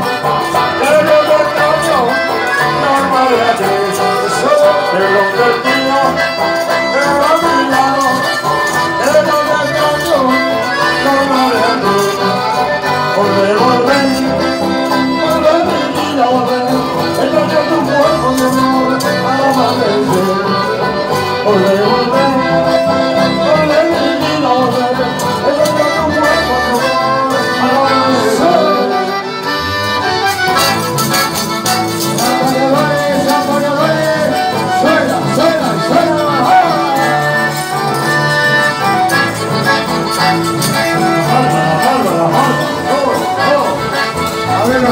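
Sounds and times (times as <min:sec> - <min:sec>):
folk band playing dance music: 0:00.0 - 0:44.9
guitar: 0:00.0 - 0:44.9.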